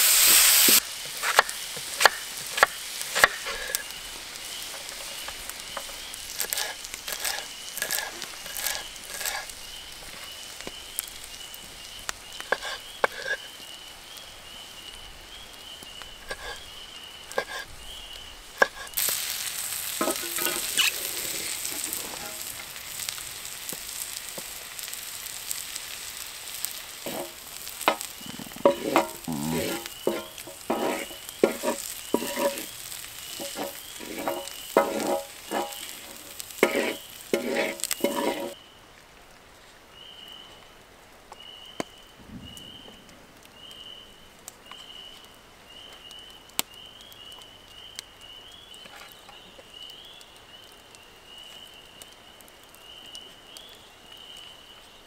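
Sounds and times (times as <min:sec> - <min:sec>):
food sizzling in a hot pan: 0:00.0 - 0:38.7
utensil scraping and clattering: 0:18.6 - 0:19.2, 0:19.9 - 0:22.6, 0:27.0 - 0:38.6.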